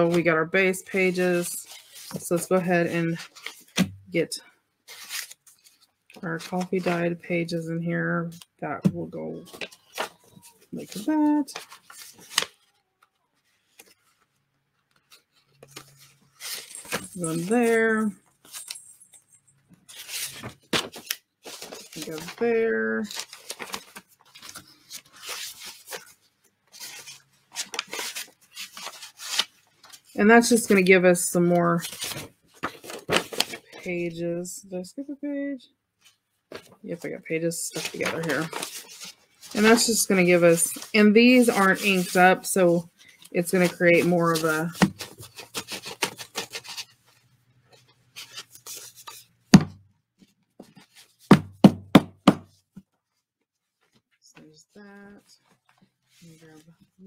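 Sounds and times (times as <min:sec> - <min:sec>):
paper sheets rustling and scraping: 0:00.0 - 0:03.9, 0:04.9 - 0:07.2, 0:09.4 - 0:12.7, 0:13.4 - 0:18.8, 0:19.8 - 0:33.9, 0:37.6 - 0:49.6
paper stack knocking on table: 0:49.5 - 0:49.8, 0:51.2 - 0:52.6.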